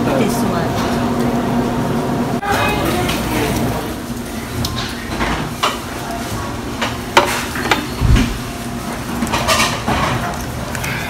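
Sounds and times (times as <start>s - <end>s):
restaurant background noise: 0.0s - 11.0s
dishes and utensils clinking: 4.7s - 8.0s, 9.2s - 10.9s.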